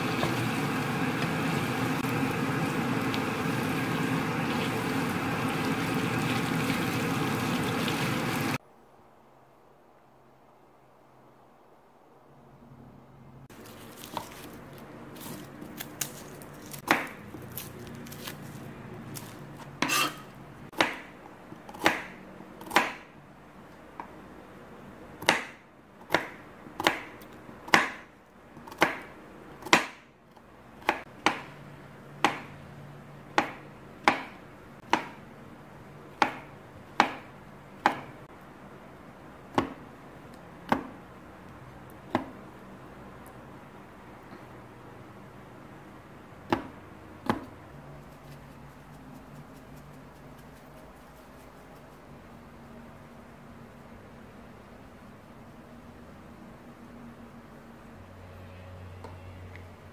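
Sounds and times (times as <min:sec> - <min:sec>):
knife chopping on cutting board: 0:16.7 - 0:18.4, 0:19.2 - 0:23.1, 0:25.2 - 0:30.0, 0:30.8 - 0:31.5, 0:32.2 - 0:32.5, 0:33.4 - 0:35.2, 0:36.2 - 0:38.2, 0:39.5 - 0:39.8, 0:40.7 - 0:41.0, 0:46.5 - 0:47.5.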